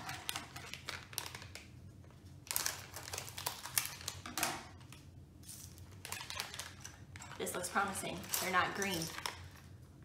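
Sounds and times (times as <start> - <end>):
plastic bag crinkling: 0.0 - 4.3.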